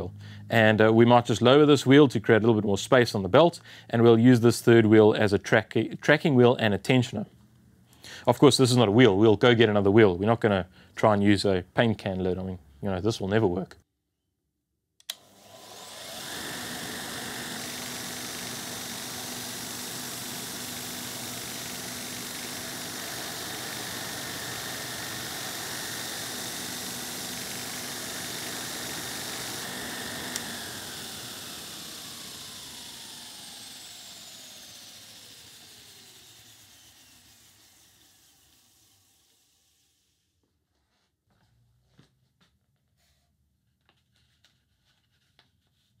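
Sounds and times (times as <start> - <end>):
motor coasting down: 15.1 - 40.2
belt grinder motor running: 15.1 - 40.3.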